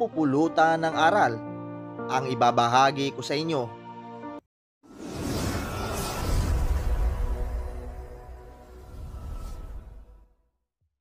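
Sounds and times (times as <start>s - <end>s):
background music: 0.0s - 4.4s
whoosh with deep rumble: 5.0s - 10.2s.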